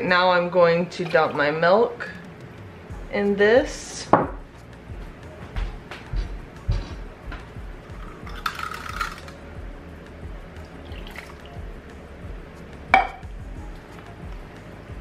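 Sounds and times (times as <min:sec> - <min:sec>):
soft background music: 0:00.0 - 0:15.0
milk pouring into ceramic crock: 0:10.8 - 0:11.5.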